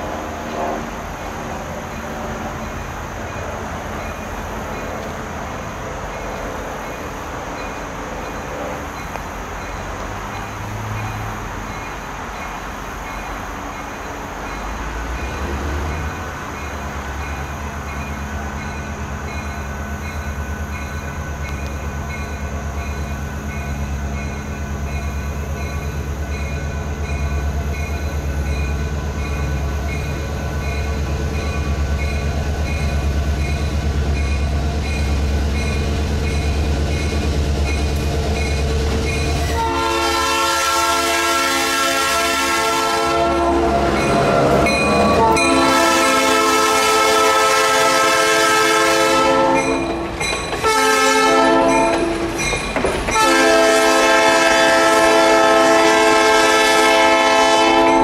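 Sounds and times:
locomotive air horn: 0.0 - 1.1, 39.5 - 50.0, 50.6 - 52.3, 53.2 - 58.0
diesel locomotive rumble: 0.0 - 58.0.

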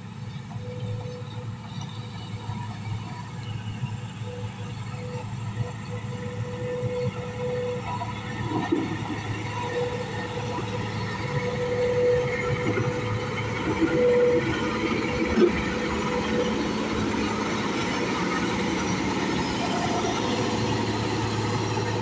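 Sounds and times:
engine whine: 0.0 - 22.0
grader diesel engine running: 0.0 - 22.0.

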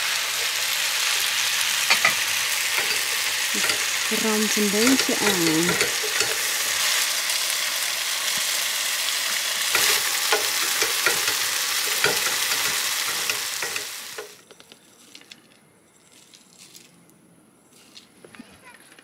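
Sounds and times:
pasta sizzling in a pan: 0.0 - 14.4
wooden spoon scraping a pan: 9.7 - 14.3.

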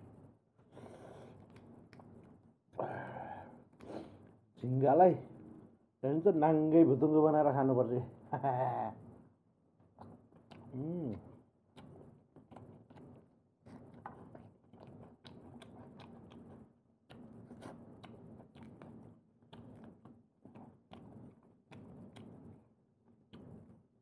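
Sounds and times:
close-up chewing: 0.7 - 4.4, 9.9 - 23.9.

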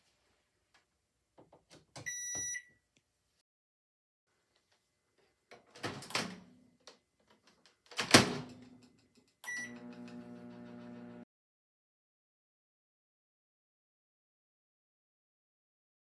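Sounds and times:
microwave keypad beep: 2.1 - 2.7, 9.5 - 9.9
microwave humming: 9.5 - 11.2.

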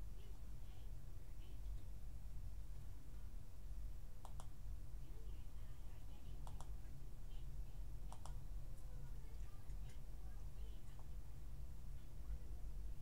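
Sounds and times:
low background hum: 0.0 - 13.0
computer mouse clicks: 4.2 - 4.6, 6.4 - 6.8, 8.1 - 8.9.

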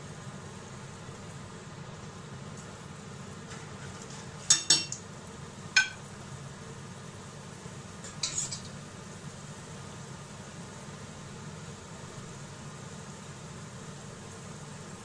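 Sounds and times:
utensils clinking on metal pot: 4.4 - 5.0, 5.8 - 6.0, 8.0 - 8.7.

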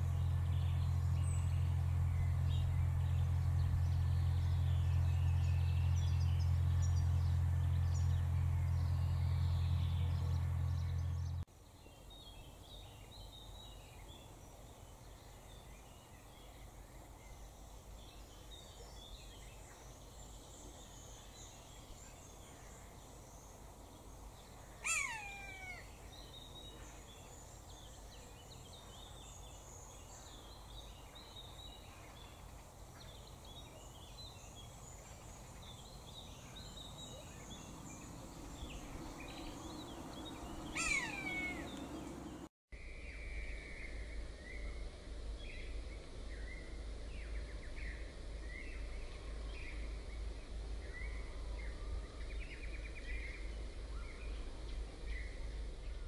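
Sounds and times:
small songbirds twittering: 0.0 - 56.0
buzzard crying: 24.8 - 25.8, 40.7 - 41.7.

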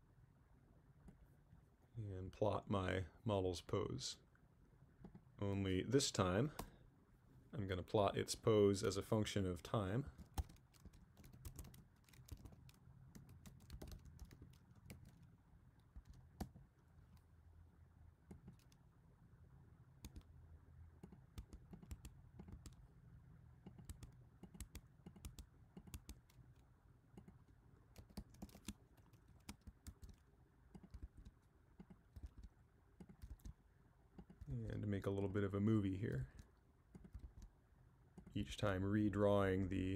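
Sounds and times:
faint low hum: 0.0 - 39.9
faint keyboard clicks: 10.1 - 17.3, 18.3 - 18.8, 20.0 - 20.3, 21.0 - 22.8, 23.6 - 33.6, 36.1 - 37.5.

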